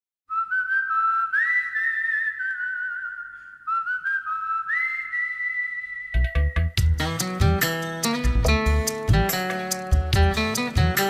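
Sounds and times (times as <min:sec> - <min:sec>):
high whistled notes: 0:00.3 - 0:06.9.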